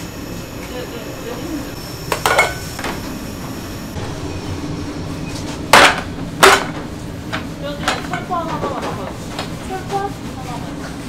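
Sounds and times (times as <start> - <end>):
machine hum: 0.0 - 11.0
metal pans clattering: 2.1 - 3.0, 5.7 - 9.5.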